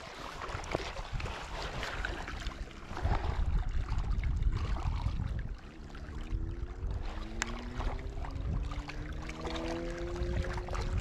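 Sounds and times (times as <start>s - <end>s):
small waves lapping: 0.0s - 11.0s
wind buffeting microphone: 0.0s - 11.0s
droning hum rising in pitch: 5.6s - 11.0s.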